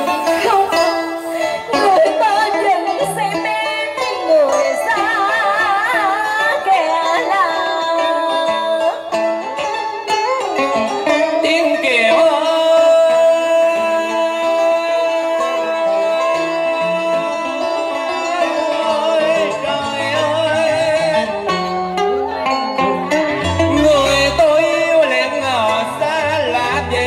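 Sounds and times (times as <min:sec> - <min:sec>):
plucked strings: 0:00.0 - 0:27.0
man singing: 0:10.9 - 0:22.0, 0:22.8 - 0:27.0.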